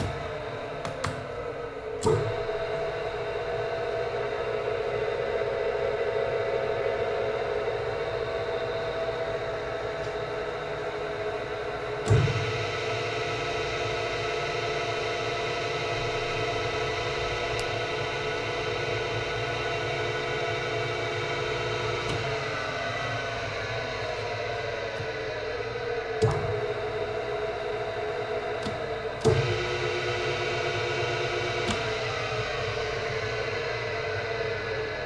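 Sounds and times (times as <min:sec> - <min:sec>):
mixer clunk: 0:00.0 - 0:02.4.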